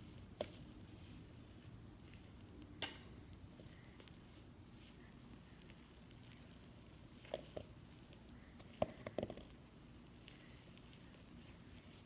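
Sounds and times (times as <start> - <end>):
slime squishing in hand: 0.0 - 12.0.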